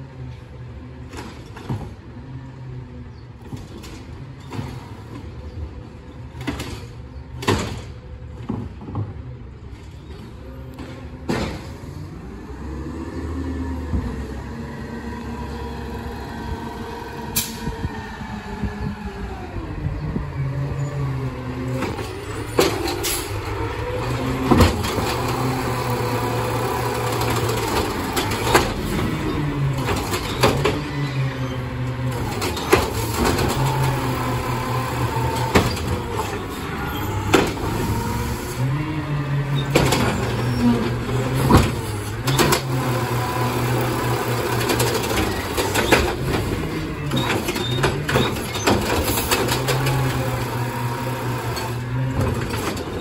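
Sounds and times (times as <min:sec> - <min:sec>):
hydraulic whine: 0:11.6 - 0:53.0
truck engine running: 0:12.0 - 0:53.0.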